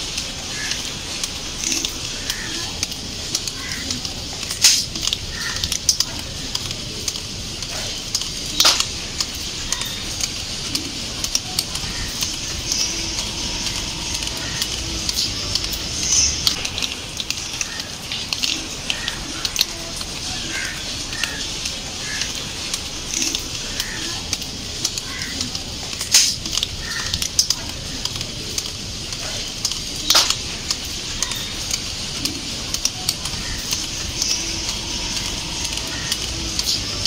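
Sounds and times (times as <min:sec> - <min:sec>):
steady hiss: 0:00.0 - 0:37.0
water dripping from leaves: 0:00.0 - 0:37.0
sharp clicks: 0:29.6 - 0:30.8.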